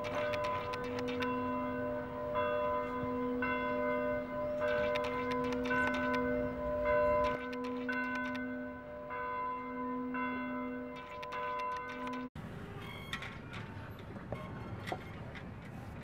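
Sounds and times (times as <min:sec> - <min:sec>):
bells ringing: 0:00.0 - 0:12.3.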